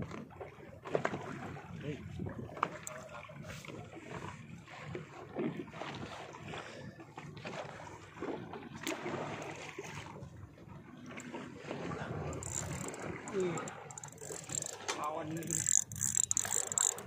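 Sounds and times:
water sloshing against hull: 0.0s - 17.0s
wind buffeting microphone: 1.4s - 6.2s, 11.7s - 17.0s.

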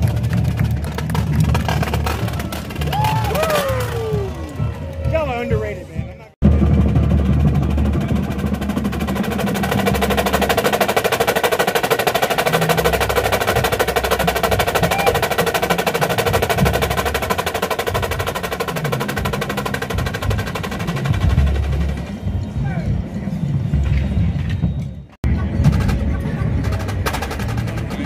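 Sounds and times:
lower drum notes: 0.0s - 28.0s
marching snare drums: 5.1s - 22.2s, 25.6s - 28.0s.

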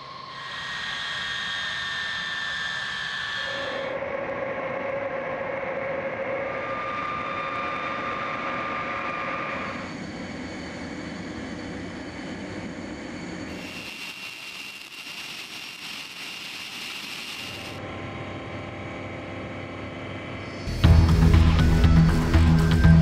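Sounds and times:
jet engine whine: 0.0s - 23.0s.

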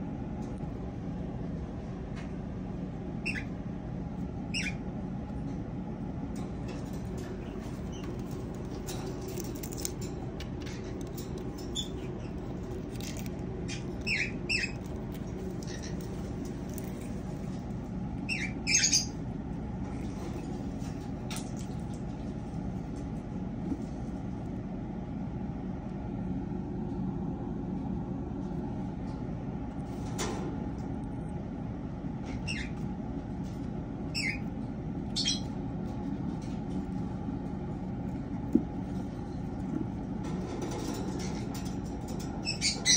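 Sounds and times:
low background rumble: 0.0s - 42.9s
steady low hum: 0.0s - 42.9s
squeaky cockatiel chirps: 18.3s - 19.1s.

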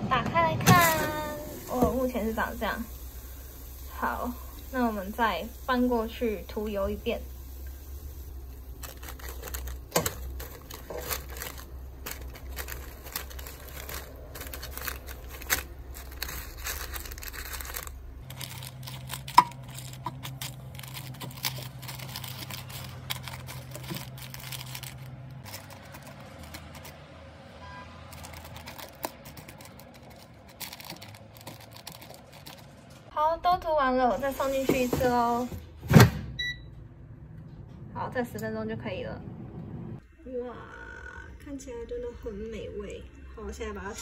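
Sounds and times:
parchment paper crinkling: 8.6s - 27.0s, 28.0s - 33.1s.

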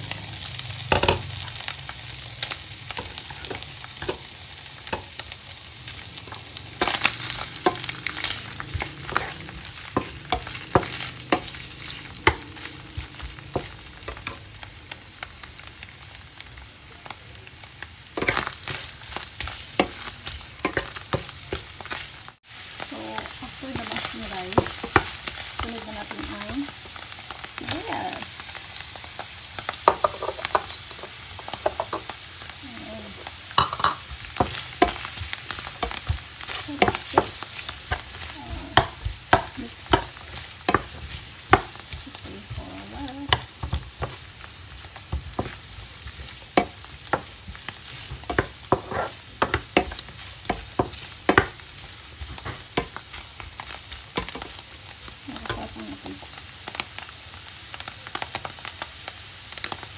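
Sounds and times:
food sizzling in oil: 0.0s - 59.9s
spatula tapping and scraping pan: 0.9s - 1.3s, 2.9s - 5.3s, 6.2s - 14.5s, 18.2s - 21.9s, 29.8s - 32.1s, 33.5s - 54.6s.

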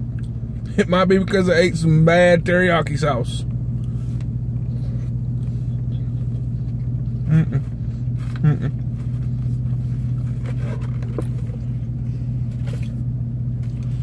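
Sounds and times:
vehicle engine idling: 0.0s - 14.0s
man murmuring: 7.2s - 7.7s.

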